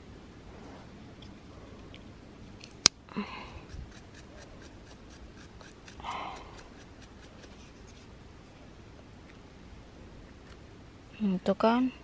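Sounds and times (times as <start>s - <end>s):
brush scraping mushroom: 3.4s - 8.2s.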